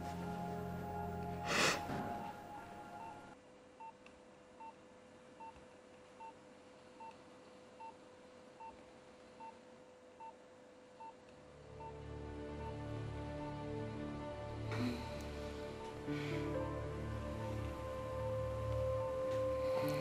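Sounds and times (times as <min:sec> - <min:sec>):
soft music: 0:00.0 - 0:03.4, 0:11.4 - 0:20.0
faint steady hum: 0:00.0 - 0:20.0
patient monitor beeping: 0:00.9 - 0:04.0, 0:14.9 - 0:16.1.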